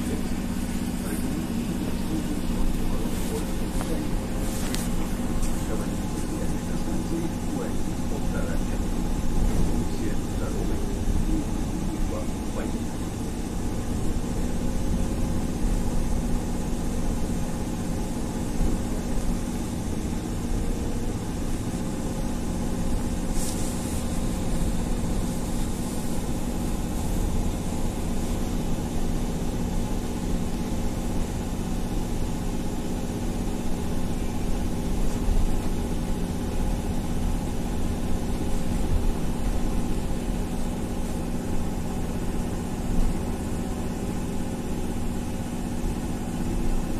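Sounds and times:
electric drive hum: 0:00.0 - 0:46.9
road and body rumble: 0:00.0 - 0:46.9
air hiss: 0:13.9 - 0:29.3.

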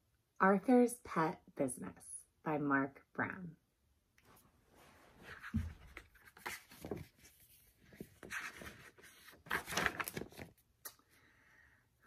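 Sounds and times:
book pages turning: 0:05.1 - 0:10.8.

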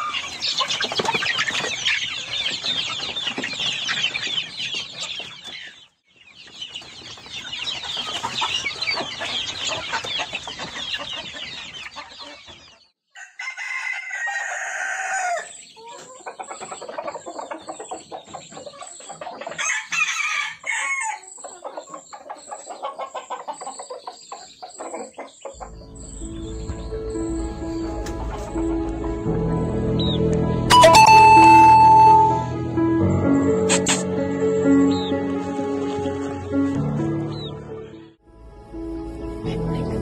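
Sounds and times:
chickens clucking: 0:00.0 - 0:12.9, 0:14.1 - 0:29.0, 0:37.2 - 0:37.6
rooster crowing: 0:13.2 - 0:15.5, 0:19.6 - 0:21.2.

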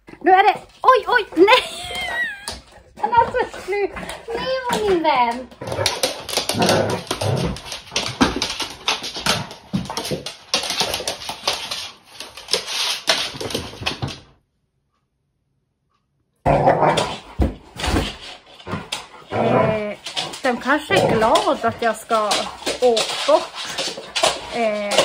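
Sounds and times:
dogs whimpering: 0:01.5 - 0:05.4.

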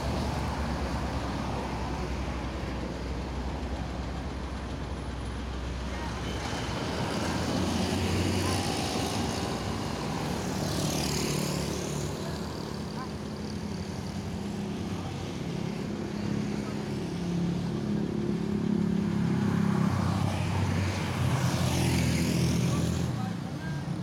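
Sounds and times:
bus diesel engine idling: 0:00.0 - 0:18.7.

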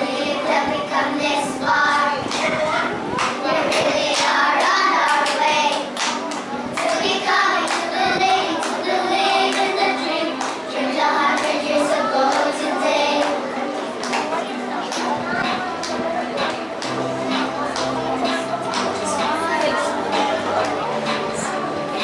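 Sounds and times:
girls singing together: 0:00.0 - 0:13.6
hand claps: 0:03.2 - 0:07.9, 0:09.5 - 0:09.7, 0:10.4 - 0:10.6, 0:14.0 - 0:14.3, 0:17.7 - 0:18.0, 0:18.7 - 0:19.0.

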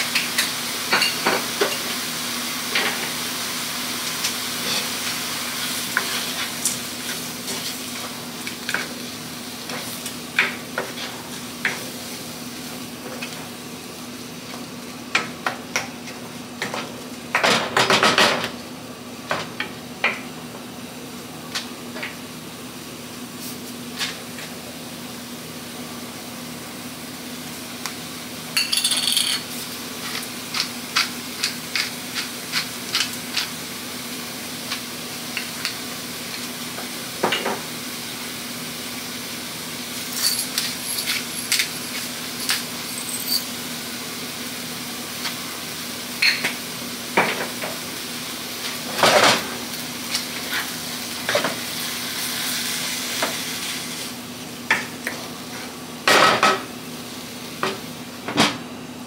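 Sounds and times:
food sizzling in a pan: 0:00.0 - 0:17.3, 0:22.2 - 0:58.2
dishes and utensils clinking: 0:28.6 - 0:29.5.

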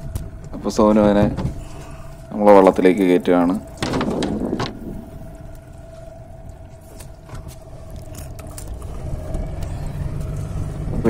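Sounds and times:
outboard motor running: 0:00.0 - 0:11.0
knocks and thuds in boat: 0:00.3 - 0:02.0, 0:03.6 - 0:05.4.

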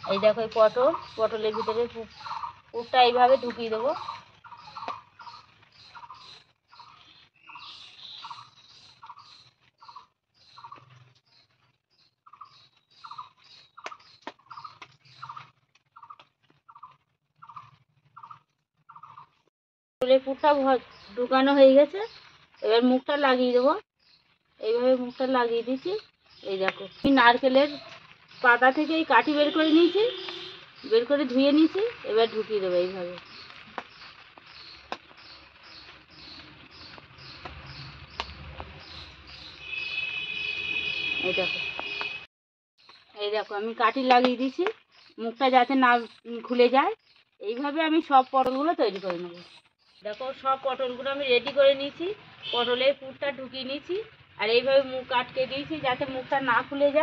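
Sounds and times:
small animal chirping: 0:04.0 - 0:10.9, 0:12.2 - 0:19.4.

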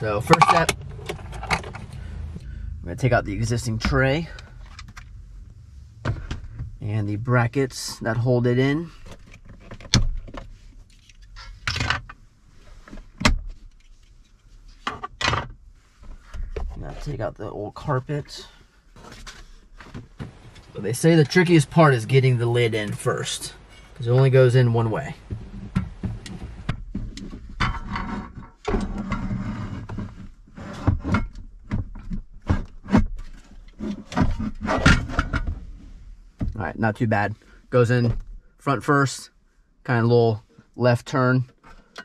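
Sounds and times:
plastic scraping rattle: 0:00.2 - 0:02.1.

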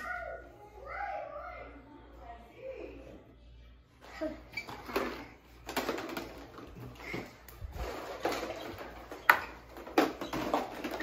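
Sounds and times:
rustling and shuffling: 0:04.0 - 0:11.0.

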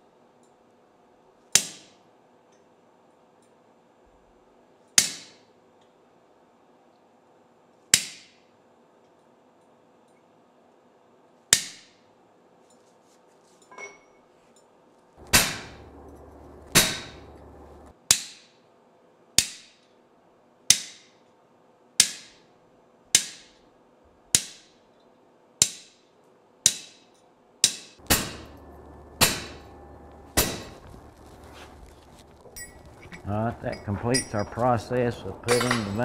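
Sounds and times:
hammer striking chisel on metal: 0:15.2 - 0:17.4, 0:27.6 - 0:30.9, 0:32.6 - 0:36.0.

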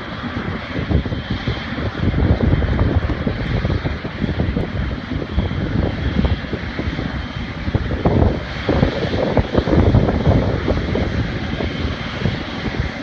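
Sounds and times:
jet engine whine: 0:00.0 - 0:13.0
low rumble: 0:00.0 - 0:13.0.

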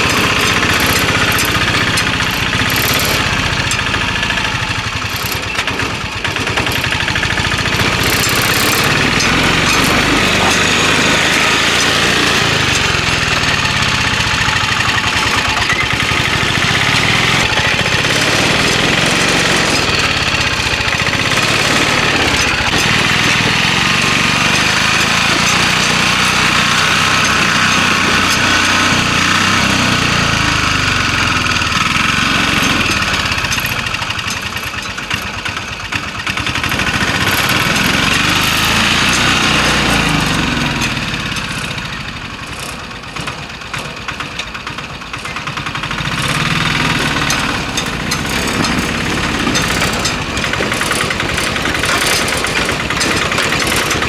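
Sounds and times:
autorickshaw engine running: 0:00.0 - 0:54.0.

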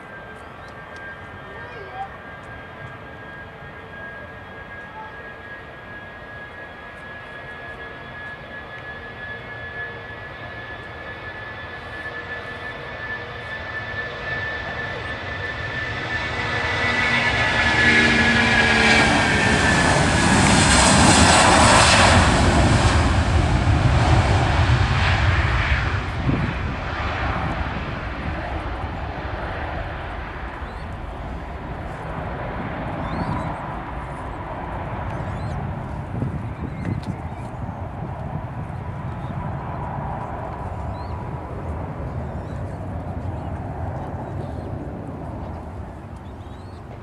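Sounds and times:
jet engines at take-off: 0:00.0 - 0:47.0.

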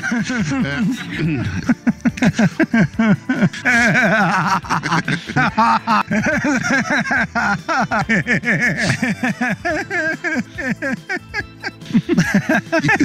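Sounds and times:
man laughing hard: 0:00.0 - 0:13.0.

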